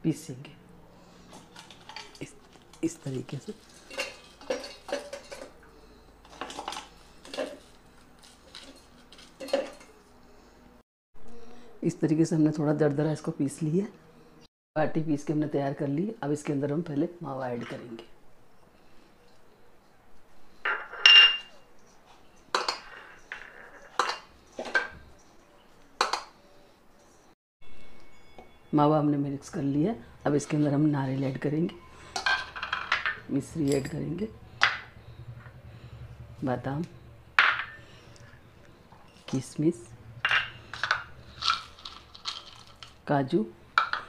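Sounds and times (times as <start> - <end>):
dough pieces clinking in metal jar: 40.2 - 43.0.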